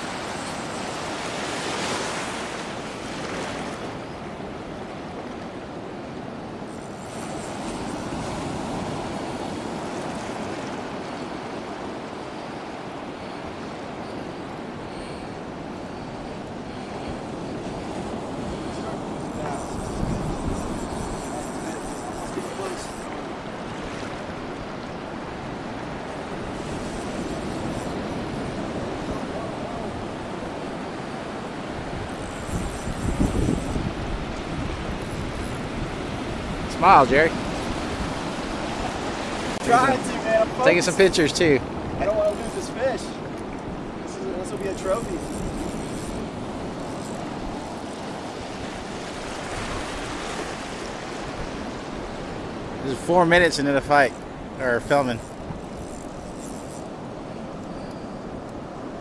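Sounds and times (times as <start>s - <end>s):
ocean surf breaking: 0.0s - 59.0s
wind on microphone: 12.4s - 41.0s.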